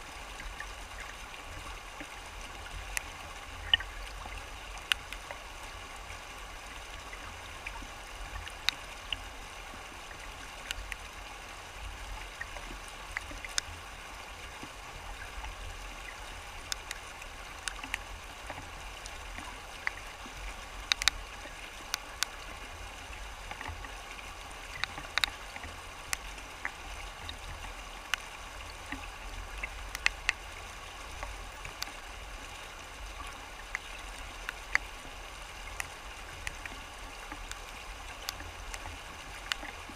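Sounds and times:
low water rumble: 0:00.0 - 0:39.9
water rushing over rocks: 0:00.0 - 0:39.9
sharp water splashes: 0:16.1 - 0:22.6.

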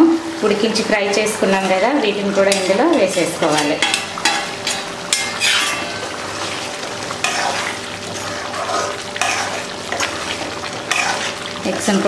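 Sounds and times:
gravy bubbling and sizzling: 0:00.0 - 0:12.0
ladle scraping metal pot: 0:02.4 - 0:11.6.

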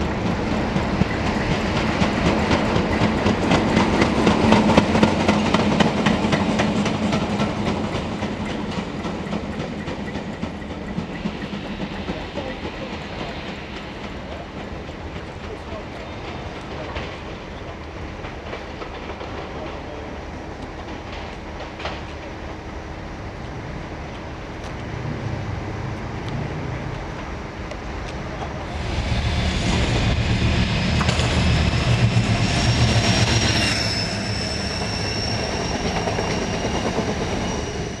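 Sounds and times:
diesel locomotive engine rumble: 0:00.0 - 0:38.0
wheels squealing on track: 0:31.3 - 0:38.0.

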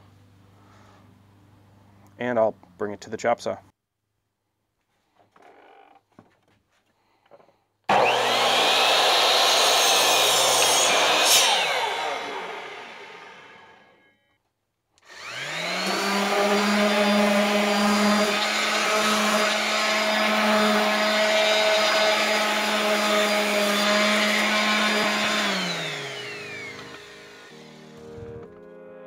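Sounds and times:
orbital sander sanding wood: 0:07.9 - 0:13.9, 0:15.1 - 0:28.4.

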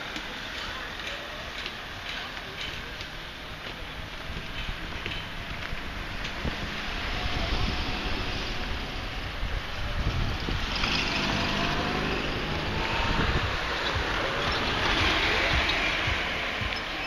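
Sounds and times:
cars driving past: 0:02.7 - 0:17.0
wind noise on microphone: 0:03.7 - 0:17.0.

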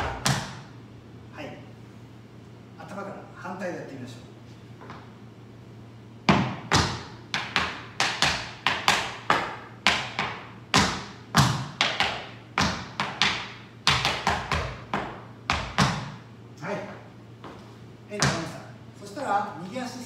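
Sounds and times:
tap shoes striking wooden floor: 0:06.3 - 0:16.2, 0:18.2 - 0:18.6.

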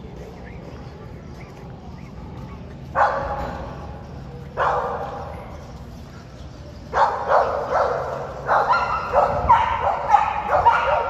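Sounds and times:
dog barking and yipping: 0:04.6 - 0:05.1, 0:06.9 - 0:11.0.

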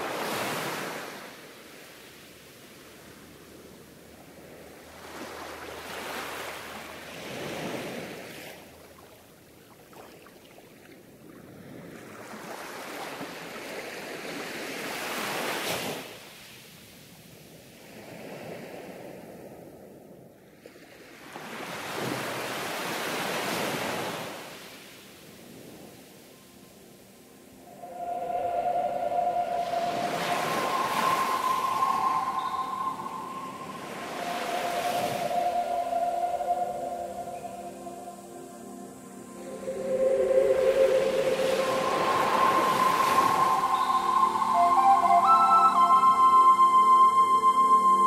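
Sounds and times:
ocean surf washing in: 0:27.3 - 0:48.0.

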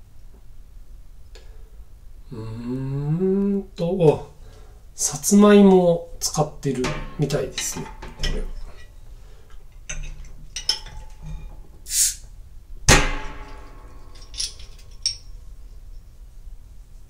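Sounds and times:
hiss of escaping gas: 0:11.8 - 0:12.3.

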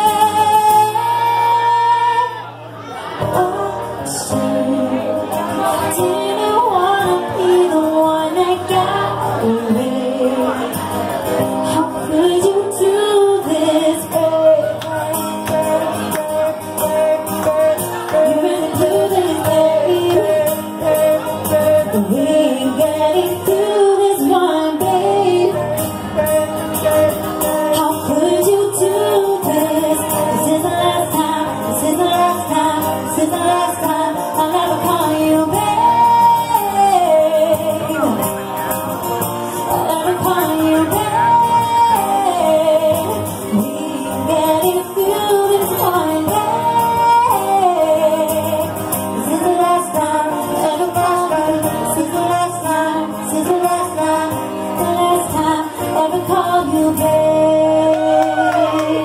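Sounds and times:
woman singing: 0:00.0 - 0:38.6, 0:39.4 - 0:59.0
strummed acoustic guitars: 0:00.0 - 0:59.0.

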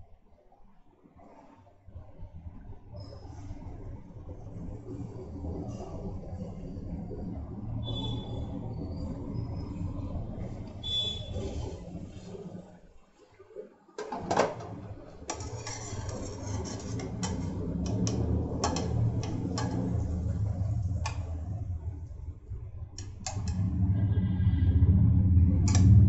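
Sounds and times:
gravy bubbling in covered pot: 0:14.1 - 0:23.9.

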